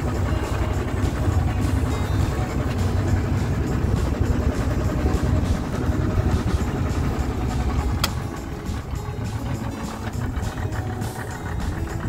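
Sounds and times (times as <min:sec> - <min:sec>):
outboard motor running: 0:00.0 - 0:12.0
sharp click: 0:08.0 - 0:08.3.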